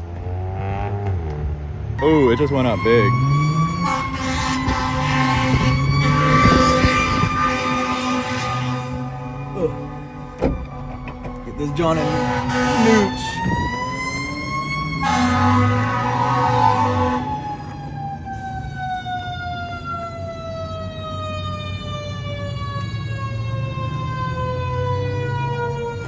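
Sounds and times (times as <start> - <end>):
emergency siren wailing: 1.9 - 26.0
low engine rumble: 4.1 - 16.9.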